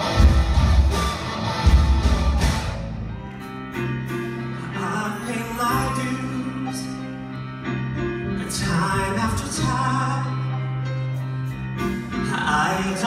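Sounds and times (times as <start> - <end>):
band holding low chords: 0.0 - 13.0
man singing into microphone: 4.6 - 7.0, 8.4 - 10.6, 12.2 - 13.0.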